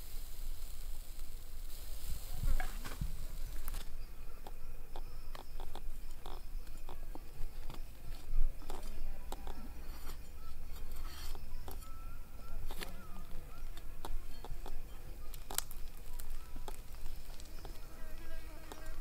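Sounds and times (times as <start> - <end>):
crackles and sharp taps: 2.4 - 9.7, 13.6 - 19.0.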